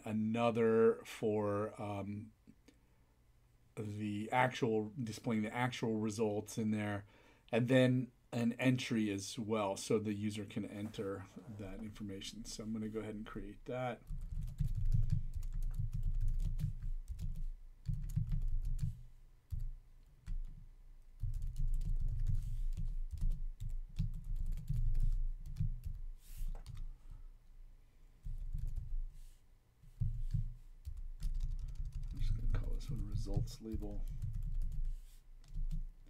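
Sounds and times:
typing on computer keyboard: 0:14.0 - 0:20.6, 0:21.2 - 0:26.0, 0:28.2 - 0:29.0, 0:30.2 - 0:35.9.

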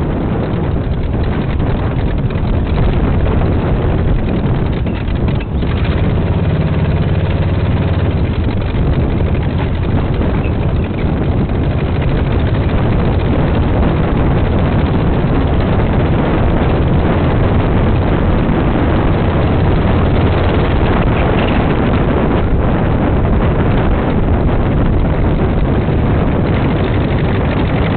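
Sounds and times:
dune buggy engine running: 0:00.0 - 0:27.9
wind on microphone: 0:00.0 - 0:27.9.

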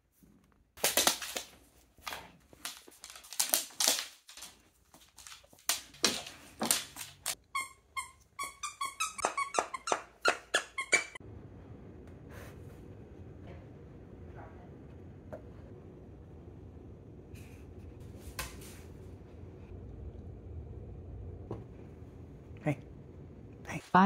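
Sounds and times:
dog toy squeaking: 0:07.4 - 0:11.2.

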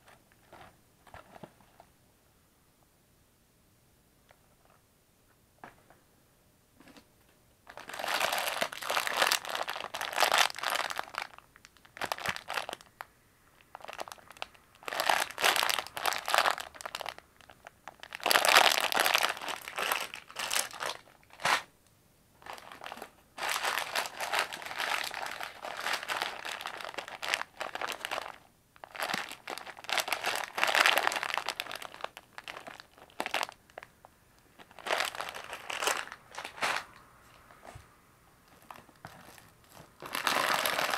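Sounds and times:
plastic wrappers crinkling: 0:07.7 - 0:13.0, 0:13.6 - 0:21.7, 0:22.4 - 0:37.6, 0:38.4 - 0:40.9.

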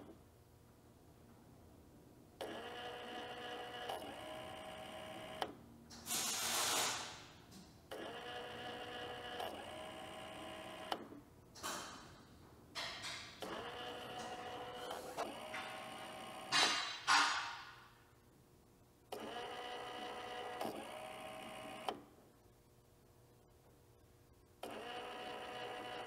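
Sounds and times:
small electric motor whining: 0:02.4 - 0:05.5, 0:07.9 - 0:11.1, 0:13.4 - 0:16.6, 0:19.2 - 0:22.0, 0:24.6 - 0:26.0.

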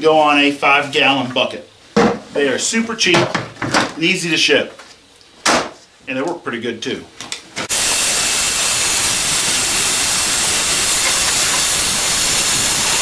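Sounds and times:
shop vacuum running: 0:07.7 - 0:13.0.

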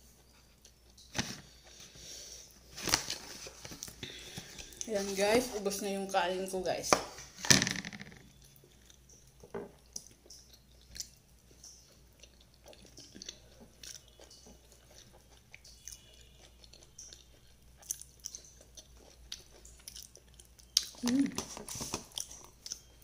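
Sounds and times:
close-up chewing: 0:08.3 - 0:23.0.

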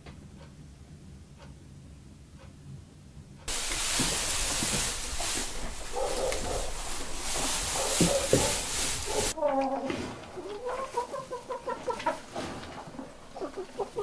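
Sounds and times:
wall clock ticking: 0:00.0 - 0:03.5
hay rustling: 0:03.5 - 0:09.4, 0:10.0 - 0:14.0
hen clucks: 0:05.7 - 0:14.0.

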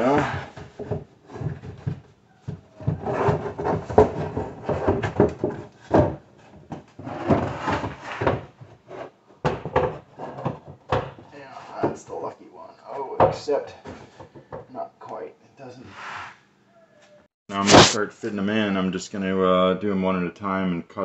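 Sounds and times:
wooden panels scraping and knocking: 0:00.0 - 0:12.0
sharp wooden knocks: 0:00.1 - 0:08.5.

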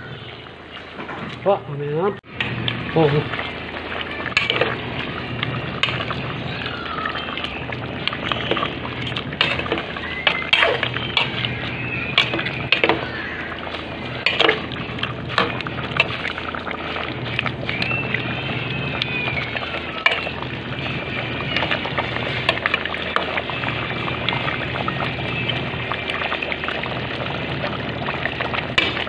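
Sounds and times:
sauce bubbling: 0:00.0 - 0:29.0
spoon scraping a metal pot: 0:08.2 - 0:13.1.

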